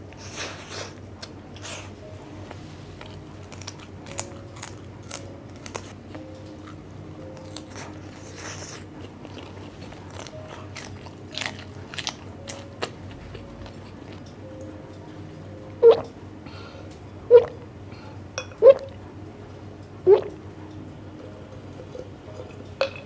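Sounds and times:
person chewing crunchy food: 0:03.0 - 0:14.4.

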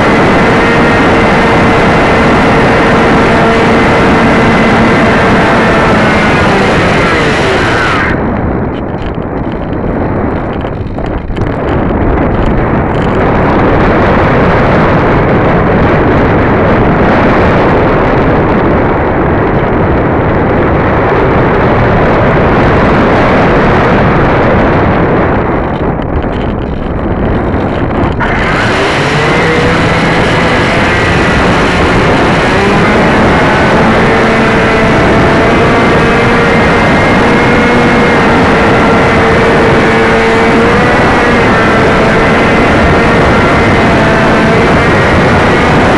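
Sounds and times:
electric motor whine: 0:00.0 - 0:08.3, 0:27.4 - 0:45.9
wind buffeting microphone: 0:00.0 - 0:45.9.

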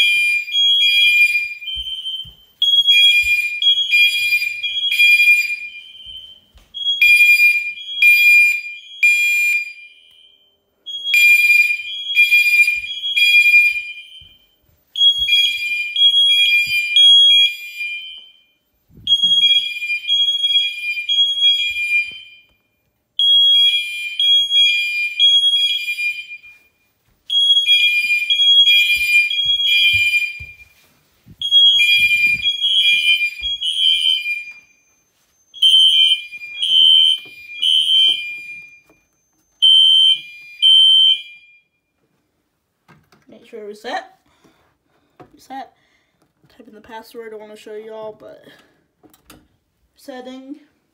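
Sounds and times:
fire alarm horn blasts: 0:00.0 - 0:14.3, 0:15.0 - 0:30.8, 0:31.4 - 0:41.9
soft footsteps: 0:01.0 - 0:07.2, 0:11.8 - 0:17.0, 0:26.4 - 0:39.1.

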